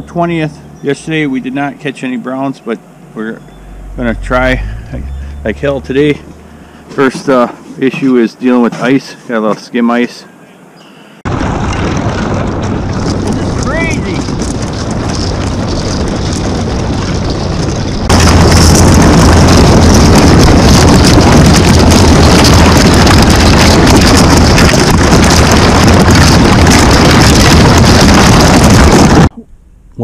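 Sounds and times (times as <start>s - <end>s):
motorboat engine: 3.4s - 7.2s, 12.3s - 26.9s
hull breaking through ice: 11.3s - 29.3s.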